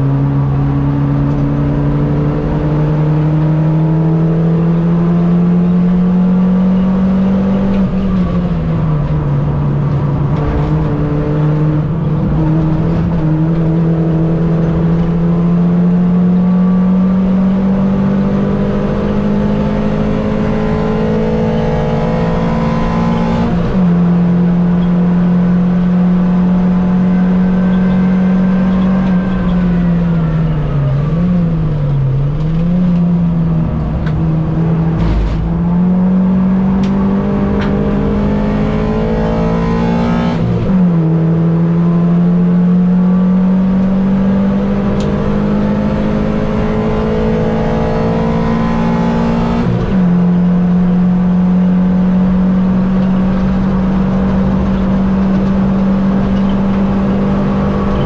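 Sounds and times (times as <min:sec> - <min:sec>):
racing car engine at high revs: 0:00.0 - 0:58.0.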